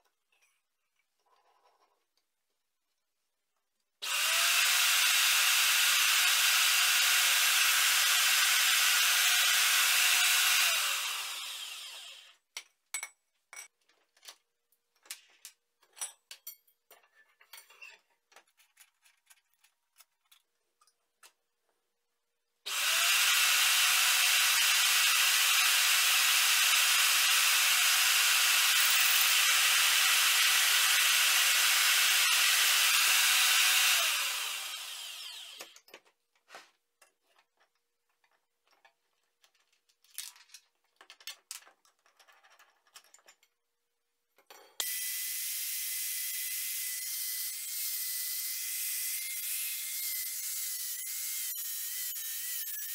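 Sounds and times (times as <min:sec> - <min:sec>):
magnetic drill drilling: 0:04.0 - 0:12.4, 0:22.7 - 0:35.8.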